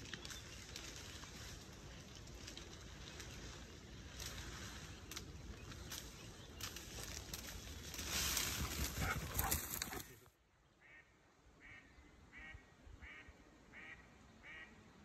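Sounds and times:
duck quacking: 10.8s - 14.7s.

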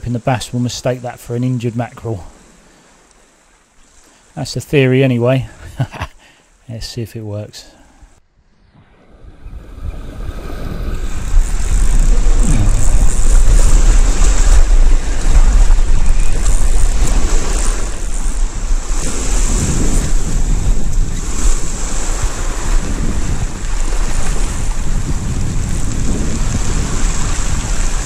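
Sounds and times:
wind buffeting microphone: 8.4s - 28.0s
waves washing over shingle: 10.4s - 28.0s.

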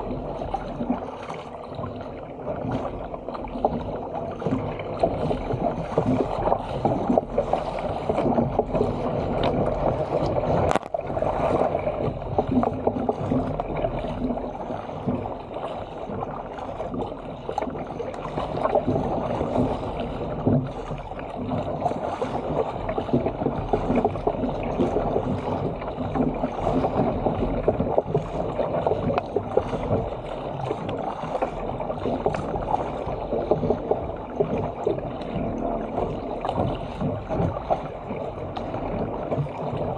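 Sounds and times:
paddle blades splashing: 0.0s - 39.9s
water rushing along a hull: 0.0s - 39.9s.

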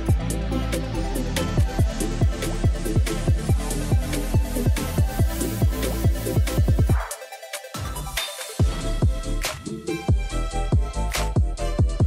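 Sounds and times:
deep kick drum: 0.0s - 0.3s, 1.6s - 7.1s, 8.6s - 9.5s, 10.1s - 12.0s
electronic music: 0.0s - 12.0s.

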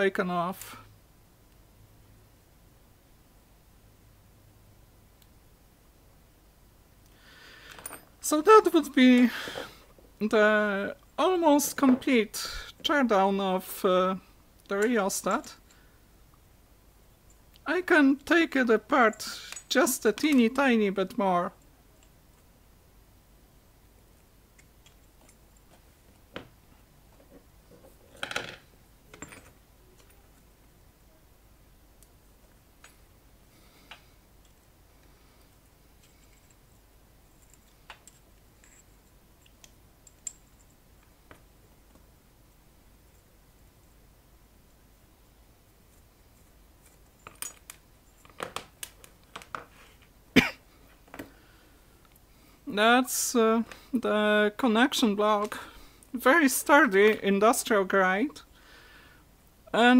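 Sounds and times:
metal parts clicking: 46.8s - 49.5s.

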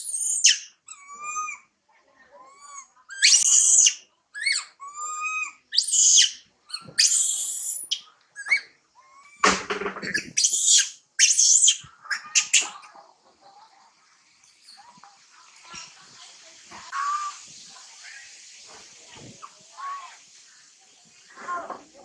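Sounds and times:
baby monkey screaming and crying: 0.0s - 1.7s, 2.4s - 13.0s, 16.9s - 17.4s.

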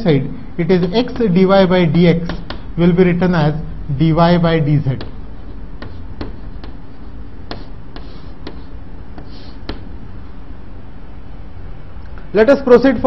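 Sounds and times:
steady low hum: 0.0s - 13.0s
chalk tapping on chalkboard: 0.8s - 2.7s, 4.9s - 10.0s
chalk scratching strokes: 5.0s - 9.9s.

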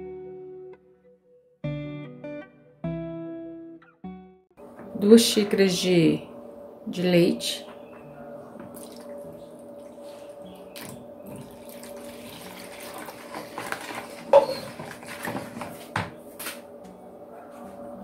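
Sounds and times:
milk pouring and splashing into bowl: 8.7s - 10.1s, 10.8s - 15.7s.

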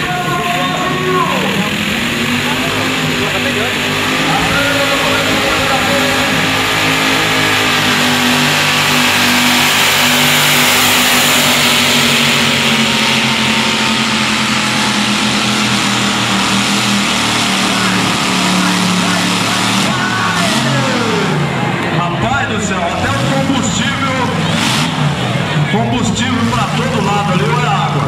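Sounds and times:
tractor engine loud drone: 0.0s - 28.0s.

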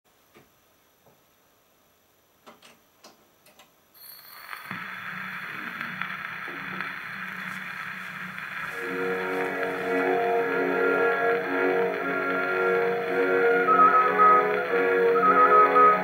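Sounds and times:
record surface hiss: 0.1s - 16.0s
needle dropping on record: 4.0s - 8.8s.

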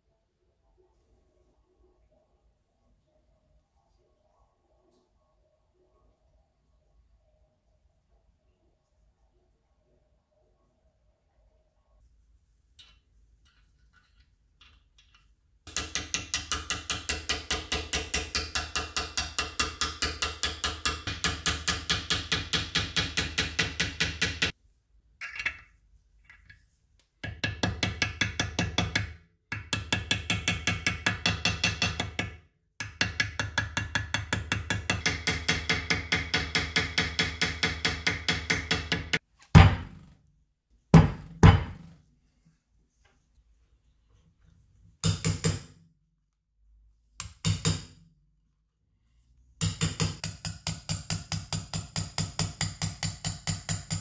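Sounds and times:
small hammer tapping sheet metal: 14.6s - 24.6s, 27.2s - 40.0s, 45.0s - 45.8s, 47.2s - 48.0s, 49.6s - 54.0s
heavy thumps: 39.6s - 40.1s, 41.0s - 41.9s.

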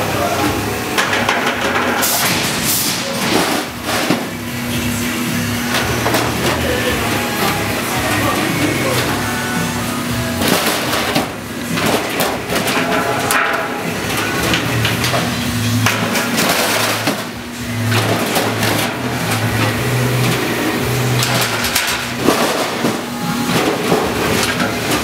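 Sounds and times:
low drive hum: 0.0s - 25.0s
machine rattling and knocking: 1.0s - 4.4s, 10.3s - 25.0s.

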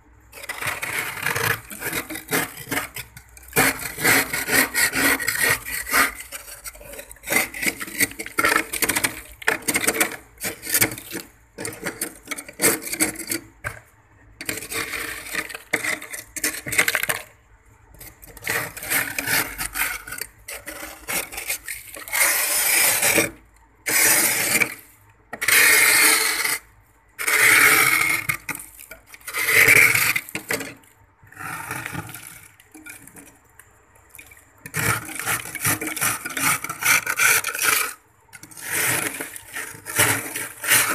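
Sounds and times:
blade scraping ice: 0.3s - 13.8s, 14.4s - 17.3s, 18.0s - 33.3s, 34.6s - 40.9s.

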